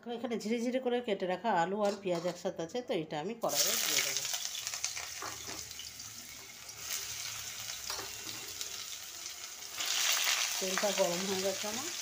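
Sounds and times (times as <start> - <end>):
vegetables sizzling in oil: 3.5 - 12.0.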